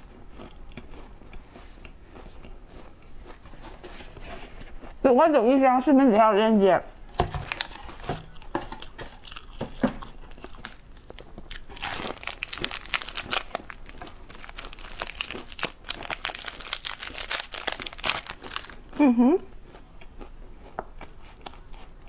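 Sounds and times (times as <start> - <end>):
wafer crunching when bitten: 10.3 - 18.8
foil wrapper crinkling: 10.6 - 18.9.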